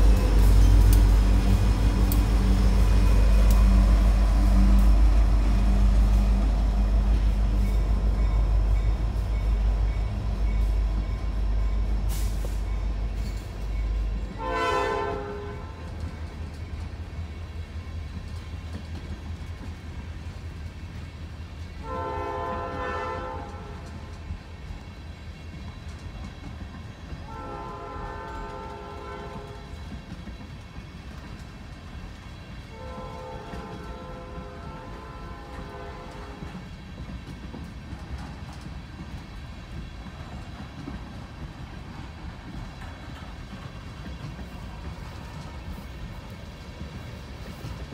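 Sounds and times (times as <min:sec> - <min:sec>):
locomotive engine rumble: 0:00.0 - 0:47.9
train cars rumbling on rails: 0:00.0 - 0:47.9
locomotive air horn: 0:14.3 - 0:16.0, 0:21.8 - 0:24.0, 0:27.2 - 0:29.8, 0:32.7 - 0:36.6.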